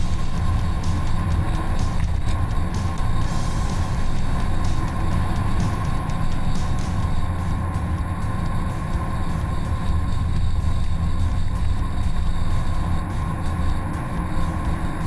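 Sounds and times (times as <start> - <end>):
vehicle driving on gravel: 0.0 - 15.0.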